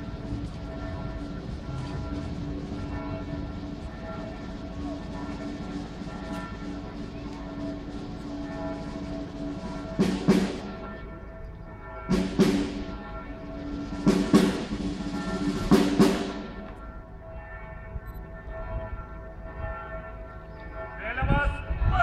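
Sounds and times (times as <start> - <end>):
drum strikes: 0.0 - 11.0, 12.1 - 16.8
brass sustained chord: 0.0 - 17.7.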